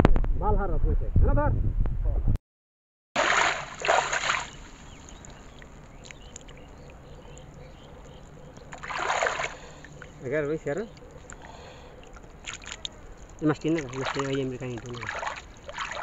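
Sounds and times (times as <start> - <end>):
shallow water splashing: 3.2 - 16.0
small ticks: 5.0 - 8.9, 10.9 - 13.4.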